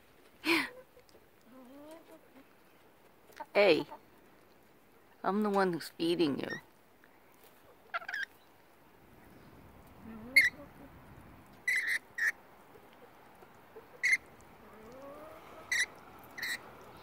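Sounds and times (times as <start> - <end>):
parrots screeching: 7.9 - 8.3, 10.3 - 10.6, 11.6 - 12.4, 14.0 - 14.3, 15.7 - 16.6.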